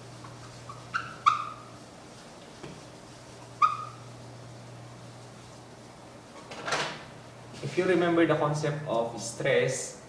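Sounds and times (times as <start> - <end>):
brushing rustle: 0.0 - 6.4
eraser squeak on whiteboard: 0.2 - 1.8, 3.6 - 4.1.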